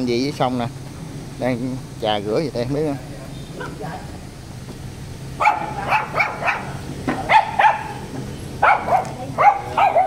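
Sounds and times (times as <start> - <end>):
dog barking: 5.4 - 10.0.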